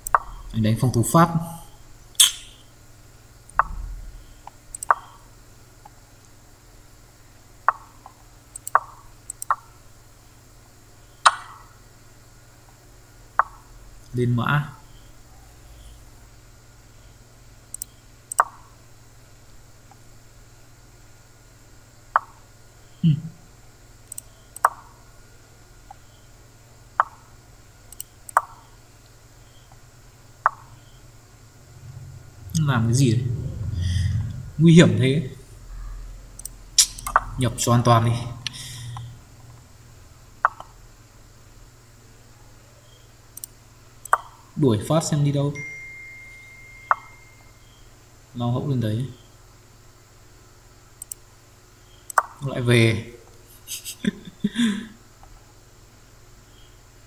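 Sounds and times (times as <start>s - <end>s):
faint computer mouse clicks: 7.7s - 9.6s, 24.1s - 24.8s, 51.0s - 51.2s
short low sound: 31.7s - 35.0s.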